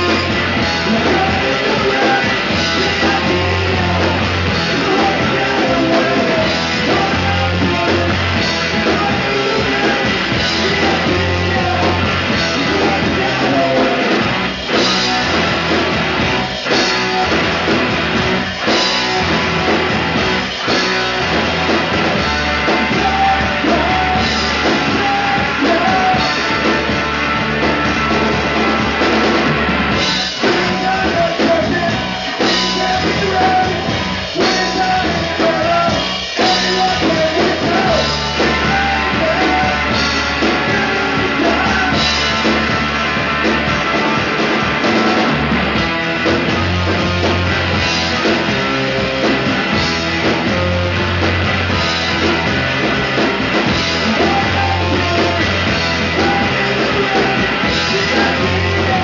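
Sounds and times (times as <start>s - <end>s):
person singing: 0.0s - 15.7s, 18.6s - 27.1s, 28.0s - 42.8s, 52.0s - 59.0s
drum kit beat: 0.0s - 59.0s
rock band playing live: 0.0s - 59.0s.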